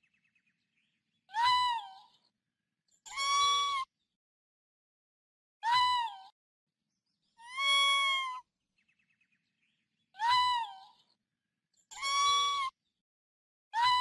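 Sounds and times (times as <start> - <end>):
meow-like animal calls: 7.5 - 8.4, 12.0 - 12.7.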